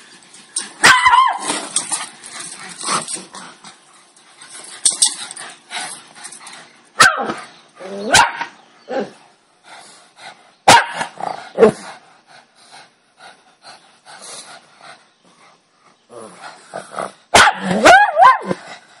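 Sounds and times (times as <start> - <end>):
dogs barking: 0.8 - 1.7, 7.0 - 9.2, 10.6 - 11.8, 17.3 - 18.6
dogs yipping: 0.8 - 3.1
dogs growling: 1.4 - 8.1, 11.0 - 19.0.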